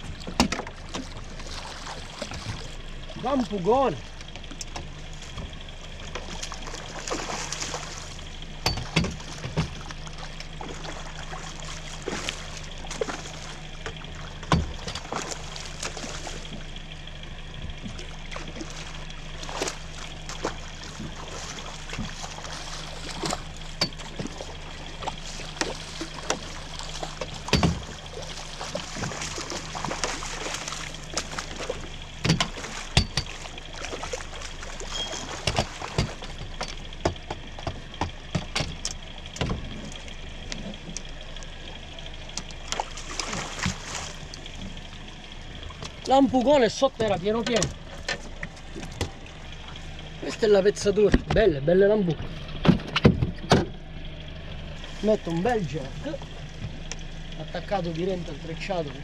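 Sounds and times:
low steady hum: 0.0s - 59.0s
water sloshing and trickling: 0.0s - 59.0s
sharp knocks: 27.2s - 28.0s, 32.2s - 33.4s, 35.4s - 39.8s.

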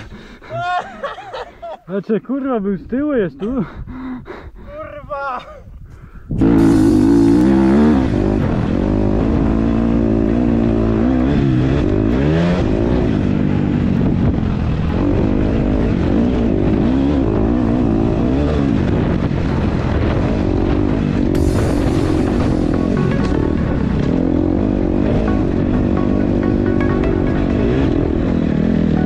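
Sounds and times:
motocross bike engine revving: 6.3s - 29.0s.

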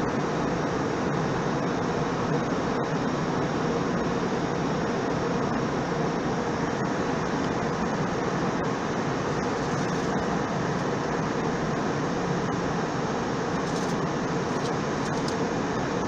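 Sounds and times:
airliner cabin engine drone: 0.0s - 16.0s.

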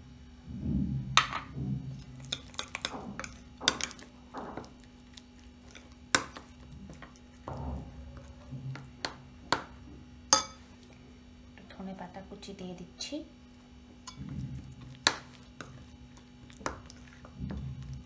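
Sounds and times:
spoon stirring paste in bowl: 1.9s - 11.0s, 14.0s - 18.0s
spoon clinking against bowl: 10.3s - 10.7s.

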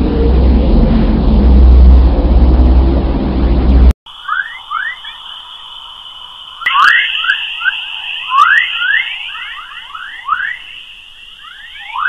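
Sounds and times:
high electronic whine: 0.0s - 12.0s
quick rising electronic chirps: 4.1s - 12.0s.

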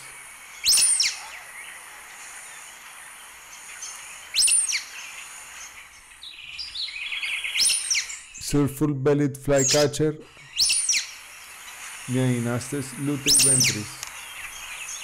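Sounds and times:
faint steady hiss: 0.0s - 15.0s
bird sharp squeaky call: 0.6s - 1.6s, 4.3s - 5.0s, 6.4s - 8.4s, 9.6s - 15.0s
bird chattering notes: 9.5s - 15.0s.

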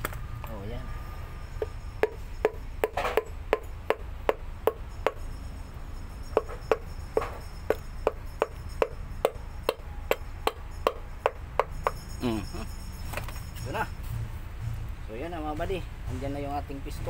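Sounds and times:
hammer knocking on wood: 1.6s - 5.2s, 6.4s - 12.0s.

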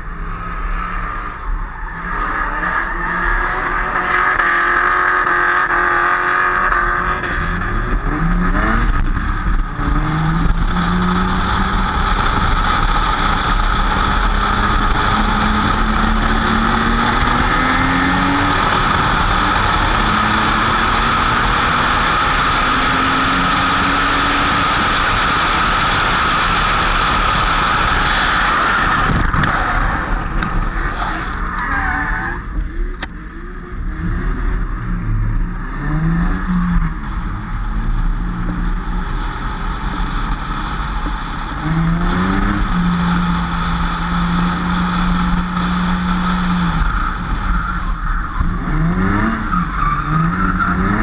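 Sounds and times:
car engine revving hard: 0.0s - 51.0s
tyre screech: 27.9s - 32.8s.

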